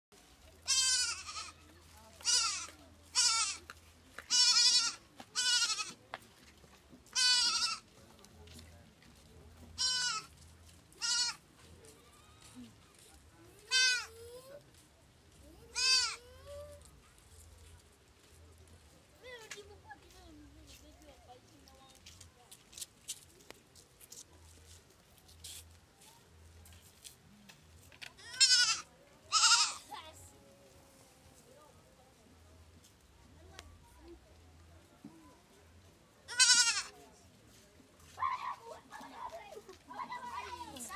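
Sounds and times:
goat kid bleating: 0:00.6 - 0:01.6, 0:02.2 - 0:03.7, 0:04.3 - 0:06.0, 0:07.1 - 0:07.8, 0:09.8 - 0:10.3, 0:11.0 - 0:11.4, 0:13.6 - 0:14.2, 0:15.7 - 0:16.3, 0:28.2 - 0:29.9, 0:36.3 - 0:36.9.

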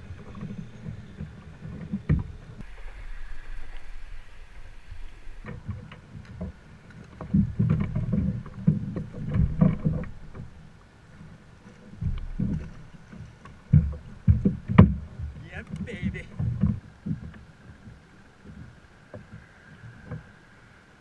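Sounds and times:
water lapping against kayak hull: 0:00.0 - 0:21.0.

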